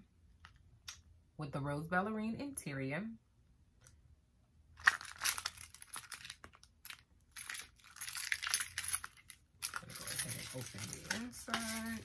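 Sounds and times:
metal keys jingling: 4.8s - 12.0s.

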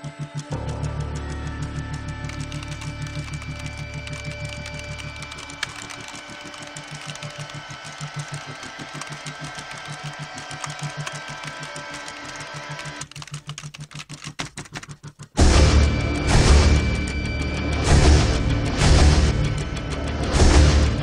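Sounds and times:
fast keyboard typing: 2.2s - 15.4s
low electronic pulse: 15.4s - 21.0s.

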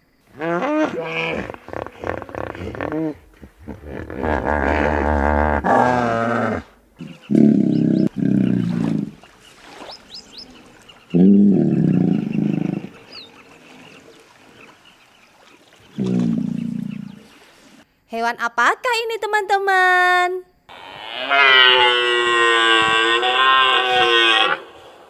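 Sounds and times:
hippopotamus bellowing and honking: 0.3s - 9.4s, 10.1s - 14.8s, 20.7s - 25.0s.

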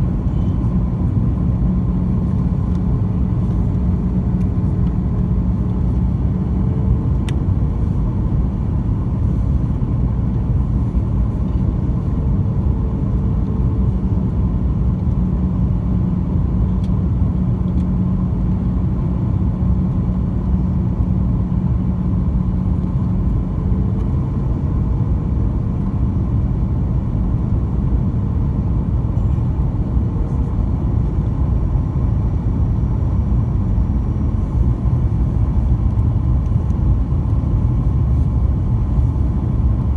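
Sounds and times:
airplane cabin engine roar: 0.0s - 39.9s.

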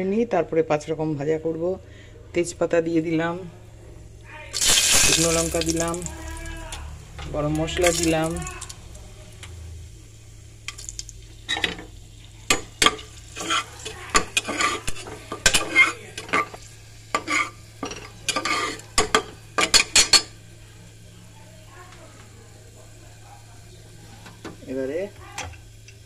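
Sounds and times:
spices frying in oil: 4.5s - 26.0s
metal ladle scraping in pot: 13.3s - 17.6s, 18.3s - 18.9s.

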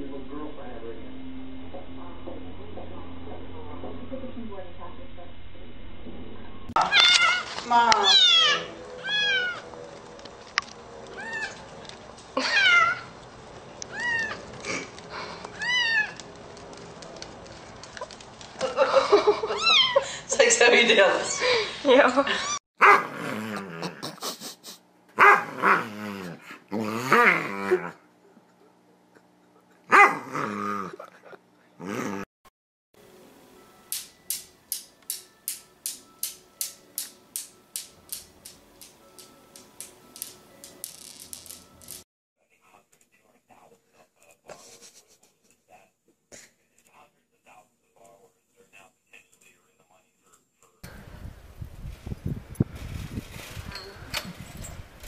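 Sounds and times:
newton's cradle balls clacking: 34.0s - 42.0s.

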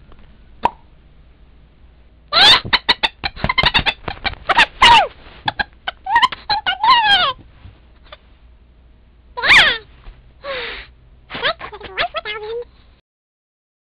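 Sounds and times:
high-pitched cartoon voice laughing: 2.4s - 7.4s, 9.4s - 9.8s, 11.3s - 12.6s
cartoon voice cries: 5.9s - 7.4s, 9.4s - 9.9s.

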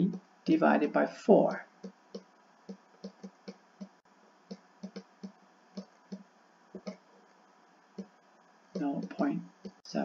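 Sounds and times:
stylus tapping on writing surface: 1.8s - 7.0s, 8.0s - 9.8s.

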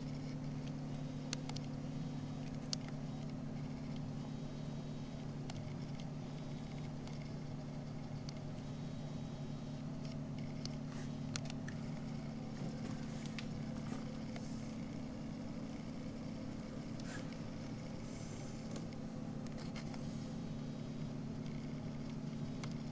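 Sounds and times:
steady low hum: 0.0s - 22.9s
faint clicks and ticks: 0.1s - 1.8s, 2.4s - 4.3s, 5.2s - 8.6s, 10.0s - 12.3s, 21.4s - 22.9s.

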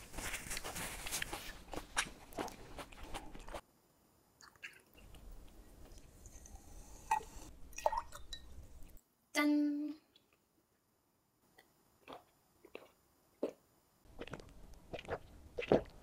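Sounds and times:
chewing: 0.6s - 3.6s, 12.0s - 13.6s.

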